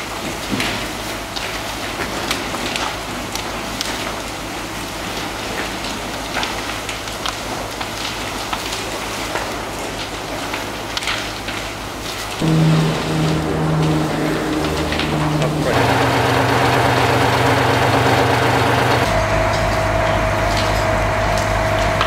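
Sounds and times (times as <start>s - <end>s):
burning timber crackling: 0.8s - 22.0s
low steady hum: 12.4s - 22.0s.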